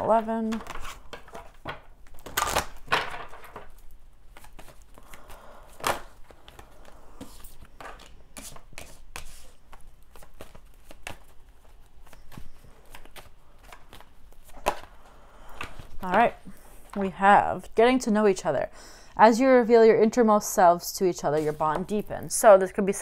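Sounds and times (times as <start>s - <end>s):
cards being shuffled: 0.4s - 17.0s.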